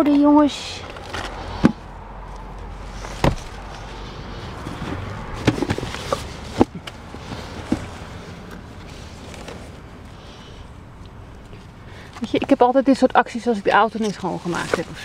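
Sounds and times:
steady low background noise: 0.0 - 15.0
plant pots knocking and bumping: 4.7 - 8.0.

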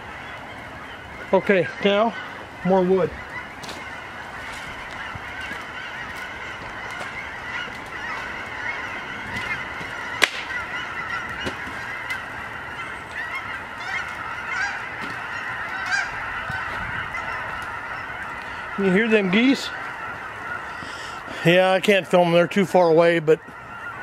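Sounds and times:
distant geese honking: 0.0 - 24.0
sharp crack: 9.4 - 12.2.

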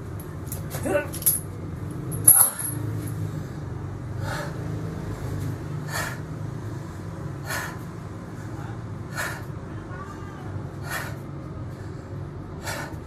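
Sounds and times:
steel chain clanking on floor: 0.8 - 1.5, 2.1 - 3.2.

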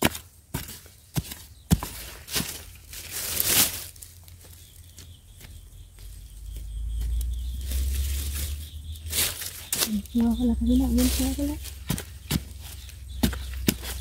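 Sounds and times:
spade chopping into soil: 0.0 - 2.6, 11.8 - 14.0
scrape through soil and leaves: 0.0 - 5.4, 6.0 - 14.0.

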